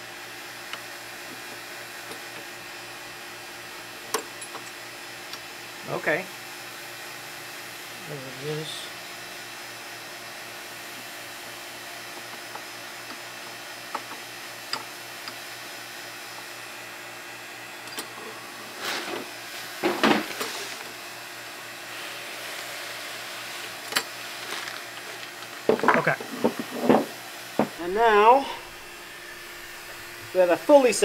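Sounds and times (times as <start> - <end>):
steady background hum: 0.0 - 31.0.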